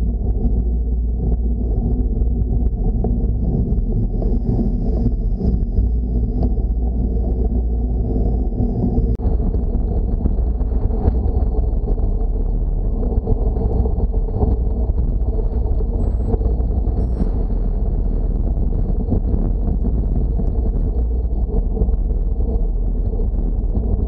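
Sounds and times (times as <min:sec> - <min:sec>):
wind and road rumble: 0:00.0 - 0:24.0
faint high whine: 0:15.8 - 0:18.6.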